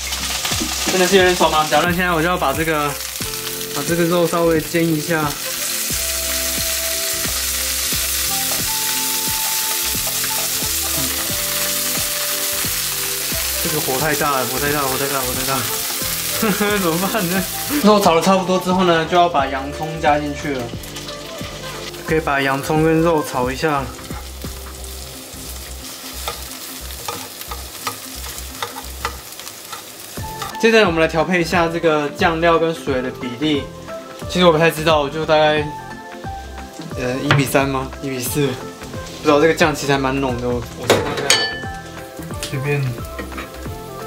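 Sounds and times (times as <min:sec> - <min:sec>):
meat sizzling in oil: 0:00.0 - 0:44.0
spatula stirring in pan: 0:07.8 - 0:13.6, 0:25.6 - 0:30.6.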